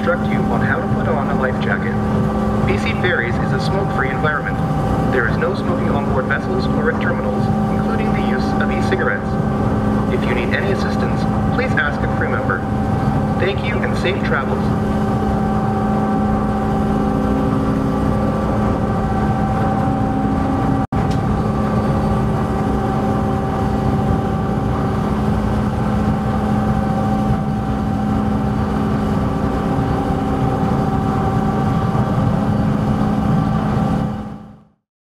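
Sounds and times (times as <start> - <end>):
ferry engines droning: 0.0 - 34.4.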